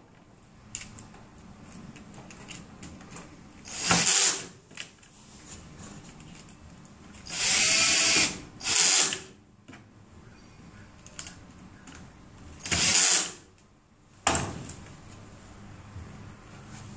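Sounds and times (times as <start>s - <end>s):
cordless drill driving screws: 3.7s - 4.5s, 7.3s - 9.3s, 12.6s - 13.4s.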